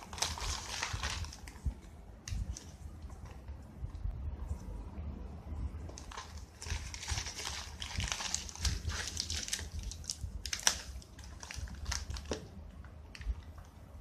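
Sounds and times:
foil snack bag crinkling: 0.0s - 1.6s, 6.0s - 12.5s.

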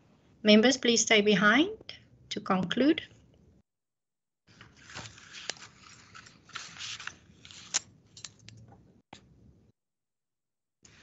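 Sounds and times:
rustling handling noises: 4.5s - 8.8s.

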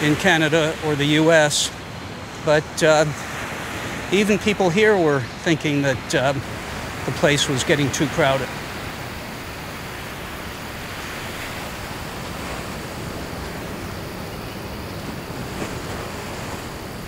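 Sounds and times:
ocean surf: 0.0s - 17.0s
wind: 0.0s - 17.0s.

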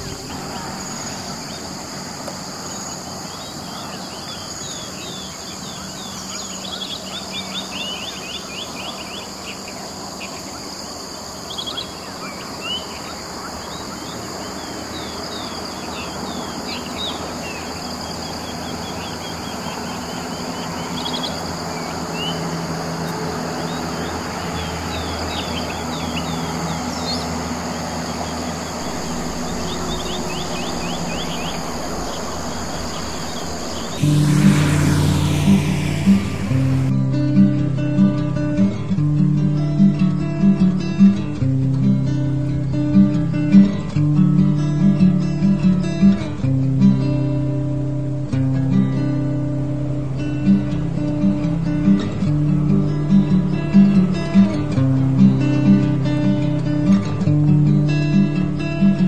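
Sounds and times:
low hum: 0.0s - 3.0s, 23.4s - 37.0s
insect chorus: 0.0s - 37.0s.

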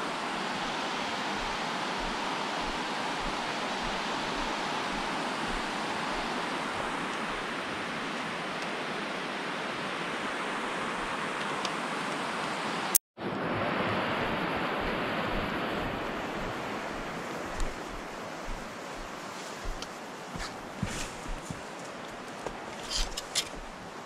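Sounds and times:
water rushing down a spillway: 0.0s - 24.0s.

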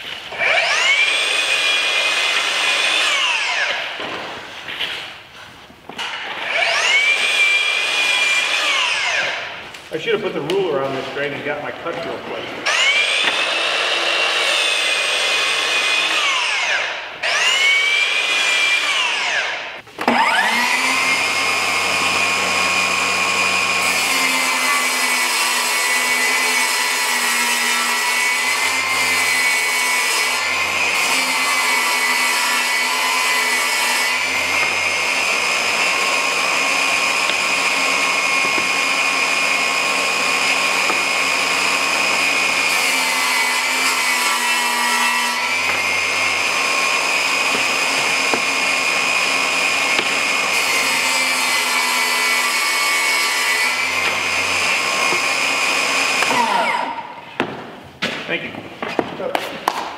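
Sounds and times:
miter saw motor whining: 0.3s - 3.8s, 12.6s - 23.9s
table saw ripping board: 12.6s - 57.6s.

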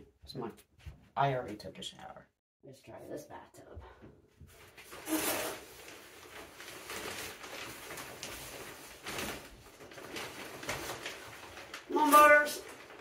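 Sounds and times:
rustling and scraping: 4.4s - 13.0s.

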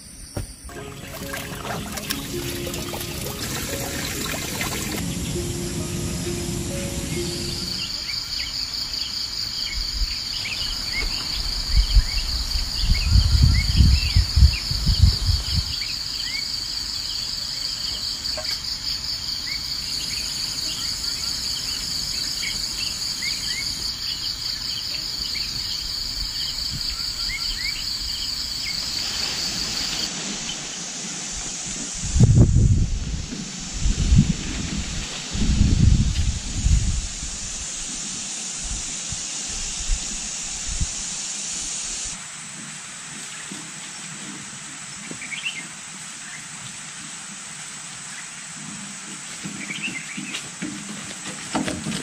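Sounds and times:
high insect trill: 0.0s - 42.5s.

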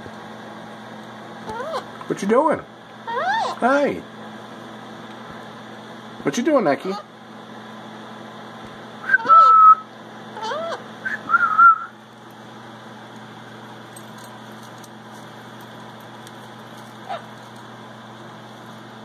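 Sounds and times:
faint steady hum: 0.0s - 19.0s
parrot whistled calls: 1.5s - 1.9s, 3.1s - 3.6s, 9.0s - 11.9s.

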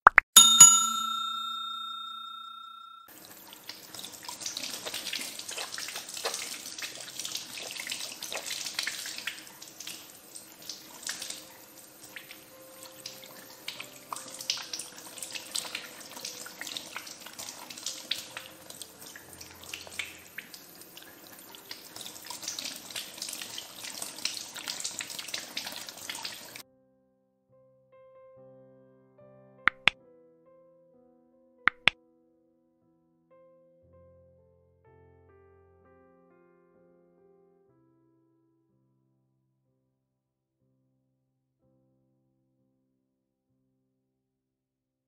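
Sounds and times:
tap water splashing on hands: 4.4s - 10.0s, 29.7s - 30.0s, 31.7s - 32.0s.

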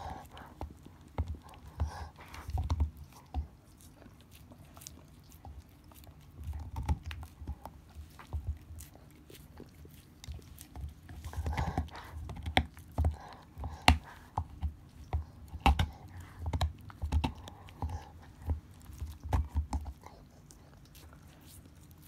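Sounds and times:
dog gnawing bone: 0.0s - 22.0s
dog licking: 0.0s - 22.0s.

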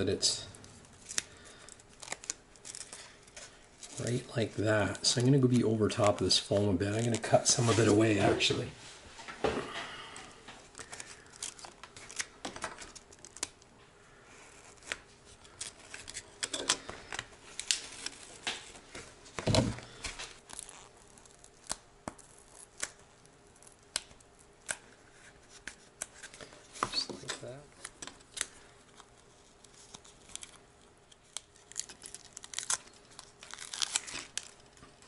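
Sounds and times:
foam tearing crackles: 1.0s - 8.6s, 20.4s - 24.6s, 29.4s - 35.0s.

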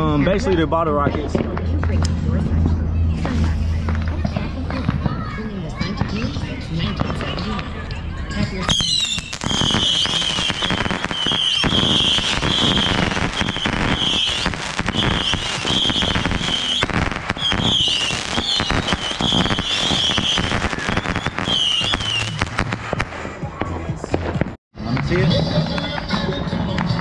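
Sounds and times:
bottle rockets whistling: 8.6s - 23.0s
crackle of pops and bangs: 8.7s - 23.4s.

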